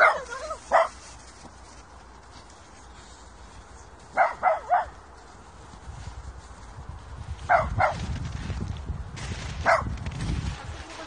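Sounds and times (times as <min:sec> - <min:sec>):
puppy yapping: 0:00.0 - 0:00.9.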